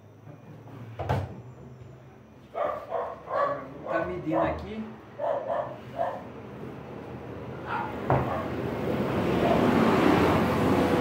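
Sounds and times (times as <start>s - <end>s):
broad rushing noise: 7.6s - 11.0s.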